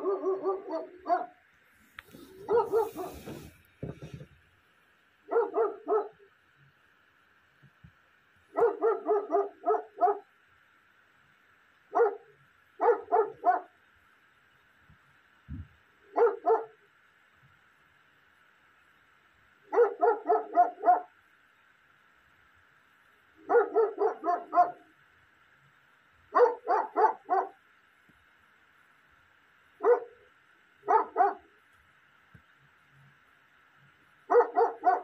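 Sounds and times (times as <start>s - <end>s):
dog barking: 0.0s - 1.4s, 2.3s - 3.5s, 5.3s - 6.3s, 8.5s - 10.3s, 11.9s - 13.8s, 16.1s - 16.8s, 19.7s - 21.2s, 23.4s - 24.9s, 26.3s - 27.6s, 29.8s - 30.2s, 30.8s - 31.5s, 34.3s - 35.0s.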